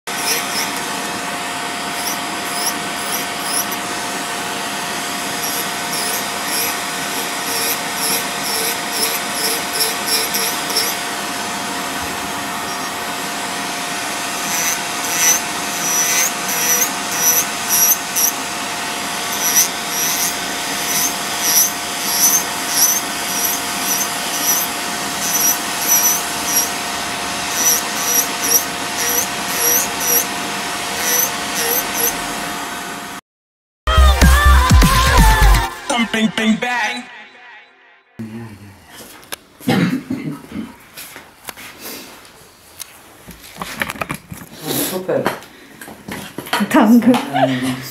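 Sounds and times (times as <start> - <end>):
short high squeaks: 0.1 - 0.8, 2.0 - 3.8, 5.4 - 11.0, 12.6 - 13.0, 14.5 - 18.4, 19.3 - 26.7, 27.5 - 30.3, 31.0 - 32.2
nail drill whining: 0.1 - 32.5.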